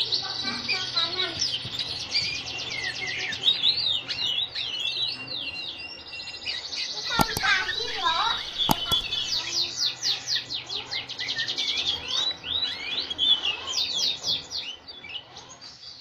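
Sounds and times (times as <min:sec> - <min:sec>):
canary singing trills: 0:00.0 - 0:16.0
sharp click: 0:07.1 - 0:07.9, 0:08.5 - 0:09.4.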